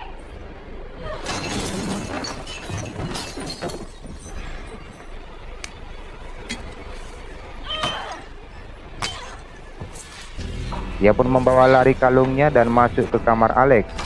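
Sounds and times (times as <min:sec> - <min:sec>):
objects clattering: 0:01.1 - 0:05.7
glass shattering: 0:01.2 - 0:05.2.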